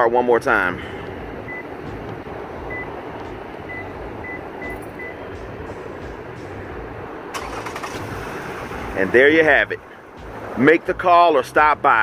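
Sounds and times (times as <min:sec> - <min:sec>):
low background rumble: 0:00.0 - 0:12.0
faint high electronic beeps: 0:03.7 - 0:05.4.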